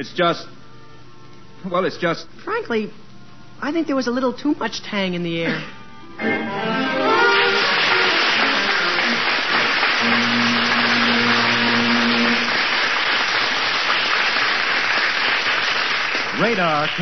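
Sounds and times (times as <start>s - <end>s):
orchestral music: 6.1s - 13.0s
audience applause: 6.9s - 17.0s.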